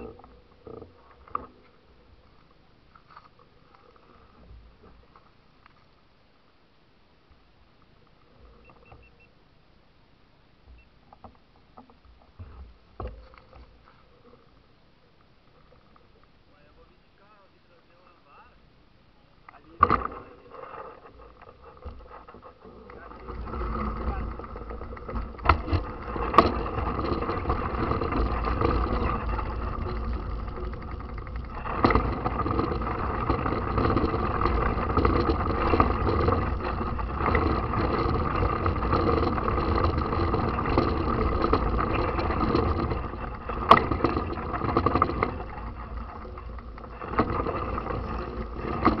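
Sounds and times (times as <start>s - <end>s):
bike tyres rolling on dirt: 19.6s - 49.0s
sharp knocks over bumps: 21.0s - 49.0s.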